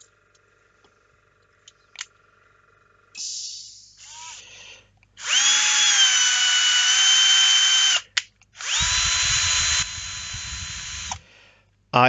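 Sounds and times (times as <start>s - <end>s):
cordless drill whining: 4.0s - 4.5s, 5.2s - 11.3s
low rumble: 8.8s - 11.2s.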